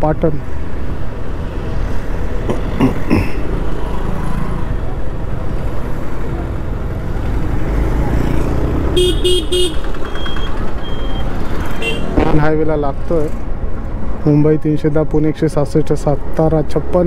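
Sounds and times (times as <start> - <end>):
wind rush and road noise: 0.0 - 17.0
vehicle horn beeps: 9.0 - 11.2, 11.8 - 12.2.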